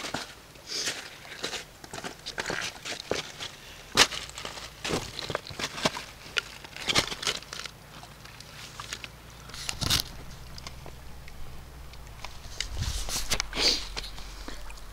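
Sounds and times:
camera handling clicks and rustles: 8.8s - 11.0s.

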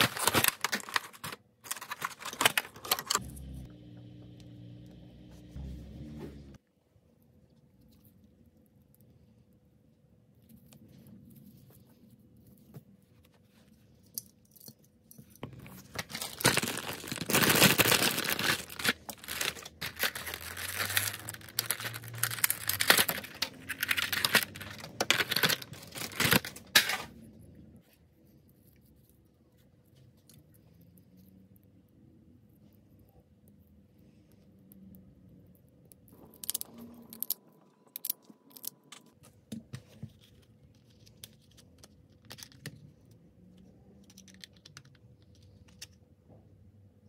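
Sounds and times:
packaging ripping and crinkling: 0.0s - 3.6s, 15.4s - 27.1s.

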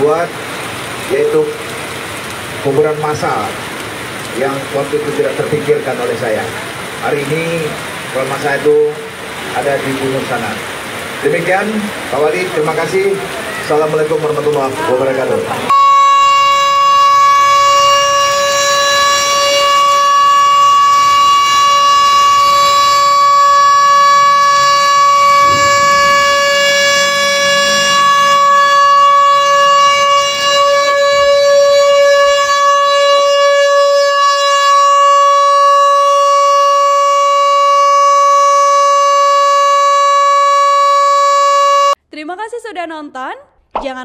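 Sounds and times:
siren steady tone: 15.7s - 42.0s.

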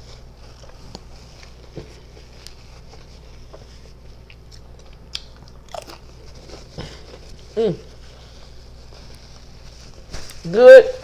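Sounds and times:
potato chip crunching: 4.2s - 6.2s.

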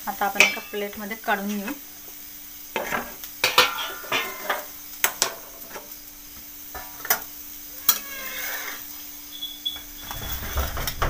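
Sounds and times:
light sizzle: 0.0s - 11.0s
metal spatula scraping a griddle: 2.8s - 4.7s, 6.7s - 11.0s.

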